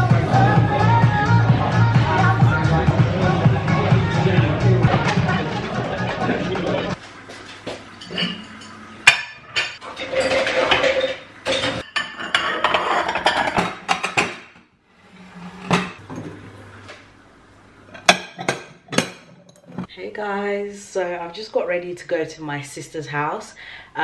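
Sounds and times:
ceramic plates clinking: 0:08.0 - 0:14.4, 0:18.0 - 0:19.9.

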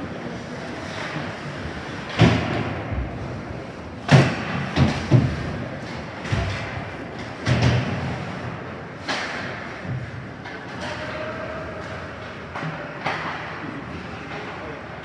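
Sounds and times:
noise of play on ice: 0:00.0 - 0:15.0
heavy thuds on rink boards: 0:04.0 - 0:10.3.

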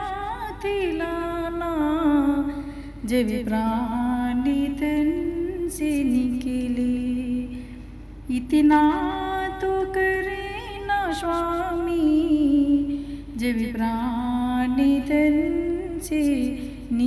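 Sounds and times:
woman singing devotional song: 0:00.0 - 0:17.0.

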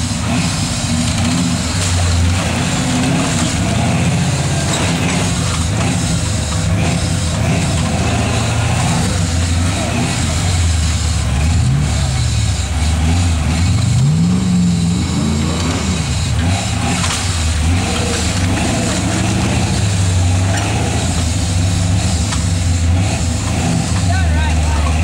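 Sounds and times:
off-road vehicle engine revving: 0:00.0 - 0:25.0.

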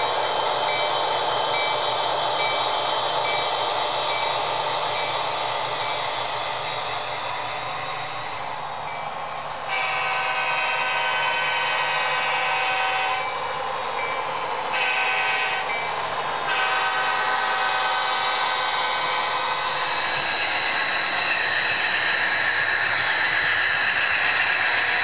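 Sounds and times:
model train track noise: 0:00.0 - 0:25.0
multi-tone air horn: 0:09.7 - 0:13.2, 0:14.8 - 0:15.7.

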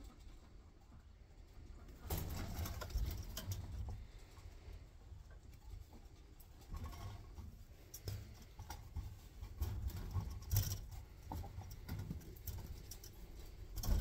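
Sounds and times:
rabbit feet tapping and scrabbling: 0:00.0 - 0:14.0
wire cage rattling: 0:02.0 - 0:04.0, 0:08.0 - 0:14.0.

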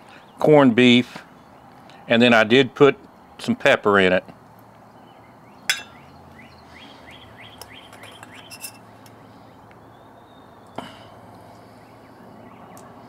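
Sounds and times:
songbird chirping: 0:00.0 - 0:03.4, 0:04.4 - 0:13.0
fork clinking on metal bowl: 0:05.7 - 0:06.0.

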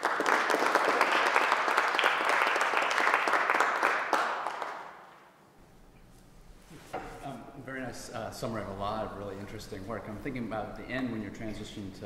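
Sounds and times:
audience applauding: 0:00.0 - 0:05.1.

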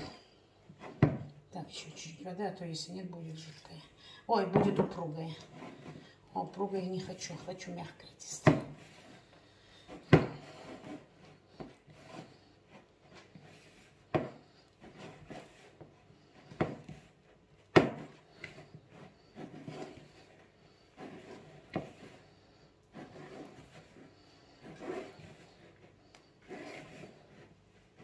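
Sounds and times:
dough squishing and rubbing: 0:00.0 - 0:28.0
dough knocking against bowl: 0:17.7 - 0:18.1.

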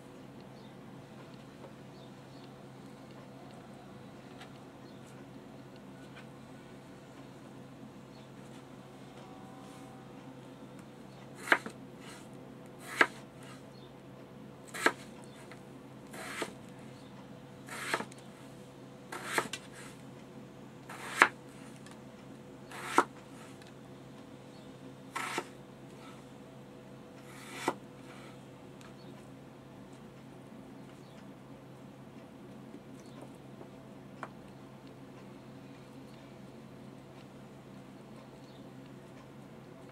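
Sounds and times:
faint steady hum: 0:00.0 - 0:39.9
knife slicing potatoes: 0:11.4 - 0:13.6, 0:14.7 - 0:15.1, 0:16.1 - 0:16.6, 0:17.7 - 0:18.2, 0:19.1 - 0:20.0, 0:20.9 - 0:21.4, 0:22.7 - 0:23.1, 0:25.2 - 0:25.6, 0:27.2 - 0:28.3.

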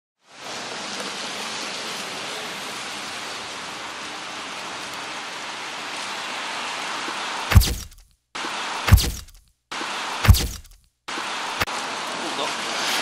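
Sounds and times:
rain on a wet street: 0:00.2 - 0:13.0.

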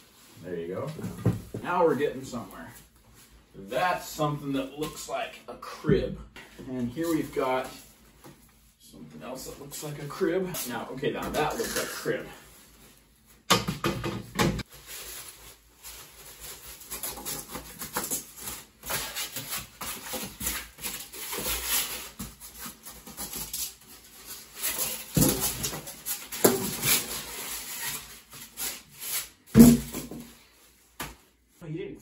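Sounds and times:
styrofoam sheets rubbing: 0:14.6 - 0:29.8
plastic wrap rustling: 0:14.6 - 0:31.6.

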